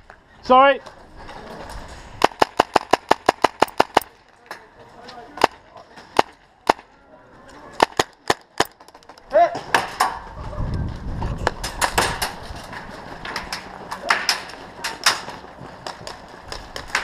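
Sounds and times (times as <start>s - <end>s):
airsoft rifle shots: 2.2s - 4.2s, 7.8s - 8.7s.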